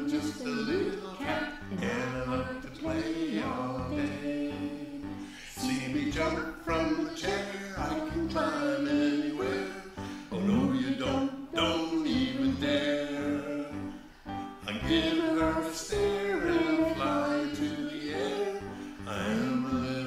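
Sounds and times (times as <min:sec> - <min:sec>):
instrumental backing: 0:00.0 - 0:20.0
voices singing a song: 0:00.0 - 0:20.0.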